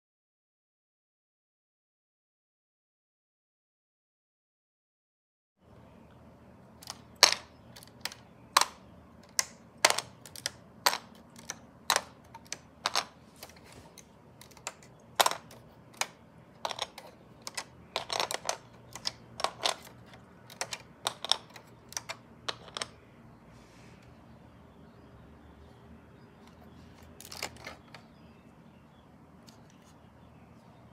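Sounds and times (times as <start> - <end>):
plastic bricks clicking: 6.8 - 23.0, 26.4 - 28.1.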